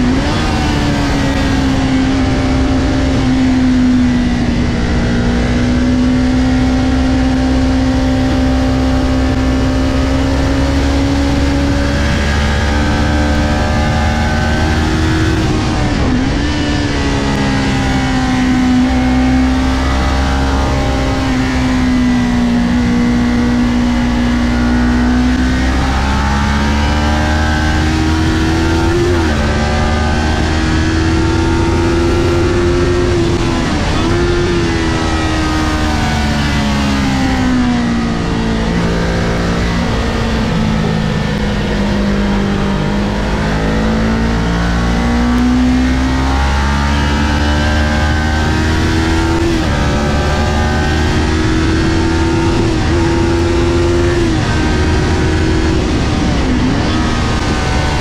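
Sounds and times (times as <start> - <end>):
motorcycle engine at racing revs: 0.0 - 58.0.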